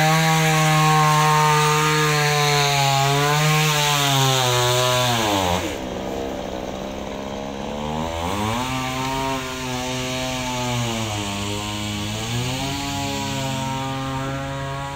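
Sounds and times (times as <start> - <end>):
wood being sawn: 0.0 - 14.9
engine running: 5.2 - 14.9.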